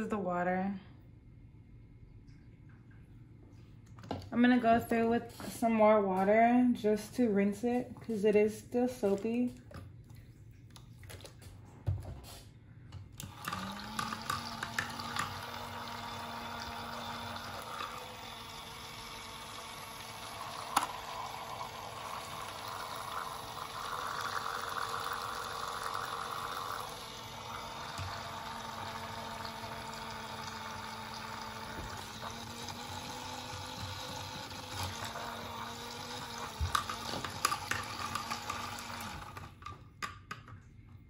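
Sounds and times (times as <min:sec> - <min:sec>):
small motor humming: 0:13.2 - 0:39.6.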